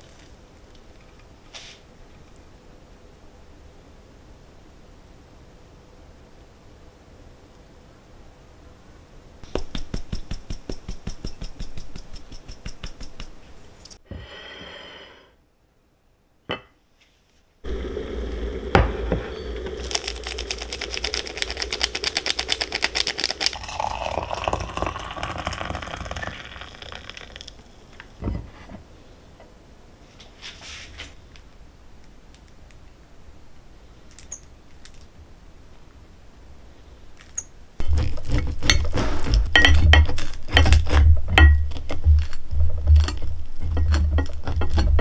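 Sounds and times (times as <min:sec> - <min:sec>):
ceramic mug and plates clinking: 0:23.6 - 0:27.4, 0:39.5 - 0:40.8, 0:41.4 - 0:41.7.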